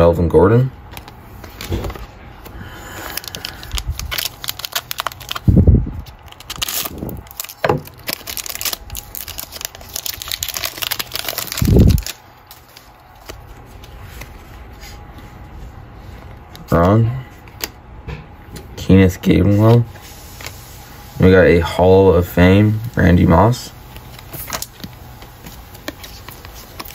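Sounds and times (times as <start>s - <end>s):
wrapper crinkling and tearing: 2.9s - 14.3s, 23.9s - 26.9s.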